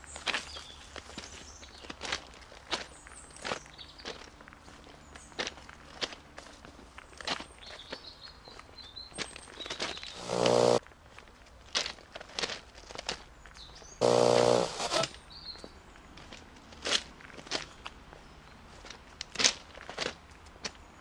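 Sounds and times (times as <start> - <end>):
footsteps on trackbed: 0.0 - 20.8
harsh buzzing blast: 10.2 - 10.8, 14.0 - 15.2.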